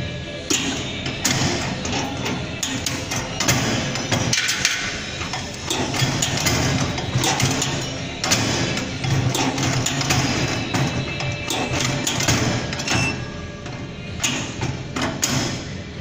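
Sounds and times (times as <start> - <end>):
turnstile rotor clacking: 0.0 - 16.0.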